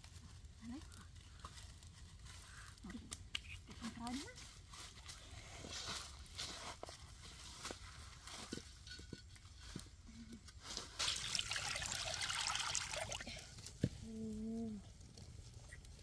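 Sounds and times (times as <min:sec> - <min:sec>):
water pouring into a wok: 0:11.0 - 0:13.5.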